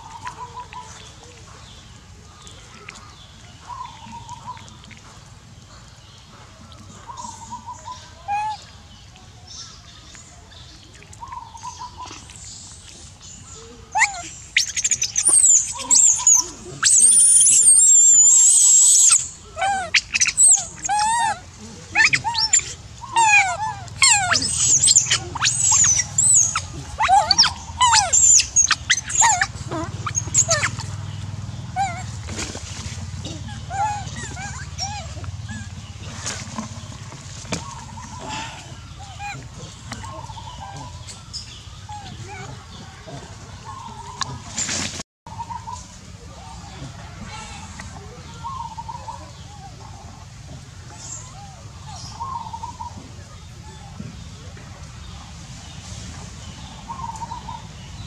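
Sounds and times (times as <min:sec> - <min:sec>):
monkey screaming and shrieking: 0:13.9 - 0:31.0, 0:31.7 - 0:32.5, 0:33.3 - 0:36.4, 0:37.6 - 0:41.2, 0:41.8 - 0:43.2.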